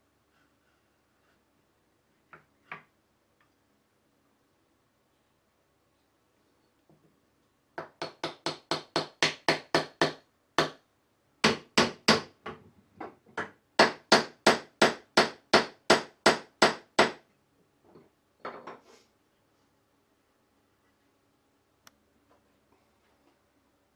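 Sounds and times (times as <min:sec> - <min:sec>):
small hammer striking wood: 0:07.8 - 0:10.8, 0:11.4 - 0:17.2.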